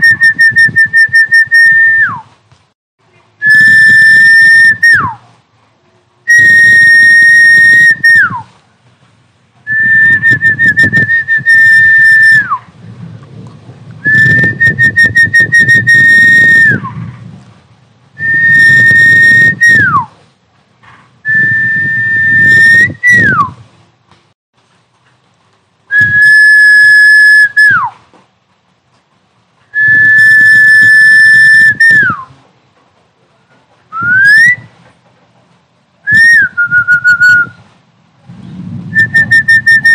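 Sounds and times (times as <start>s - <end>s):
long high whistles from loudspeaker: 0.0s - 2.2s, 3.4s - 5.2s, 6.3s - 8.5s, 9.7s - 12.7s, 14.0s - 17.0s, 18.2s - 20.1s, 21.2s - 23.6s, 25.9s - 28.0s, 29.7s - 32.4s, 33.9s - 34.7s, 36.0s - 37.6s, 38.9s - 39.9s
rough low noise: 36.5s - 39.9s.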